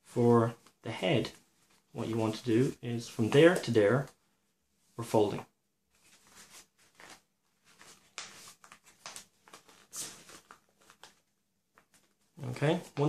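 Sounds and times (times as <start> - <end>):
paper rustling: 5.9 - 13.0.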